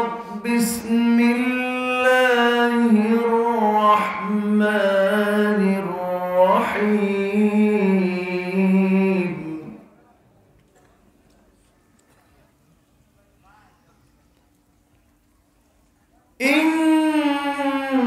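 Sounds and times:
man chanting melodically: 0.0s - 9.9s, 16.4s - 18.0s.

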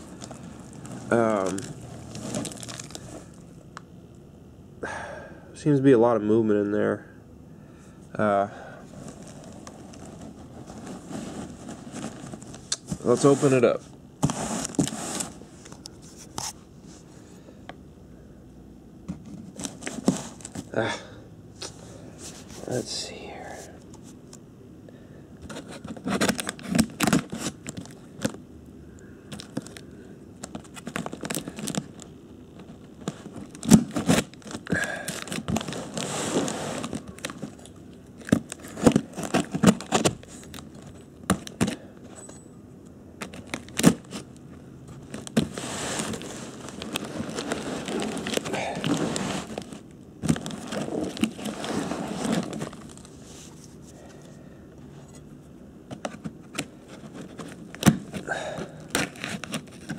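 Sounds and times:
tape tearing and crackling: 0.0s - 3.4s, 25.5s - 28.4s, 30.4s - 41.8s, 43.2s - 44.3s, 45.0s - 53.6s, 56.5s - 59.9s.

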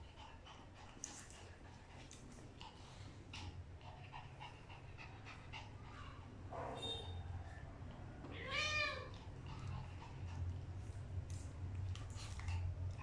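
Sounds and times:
dog panting: 0.0s - 6.5s, 9.1s - 13.0s
animal cry: 8.3s - 9.2s.

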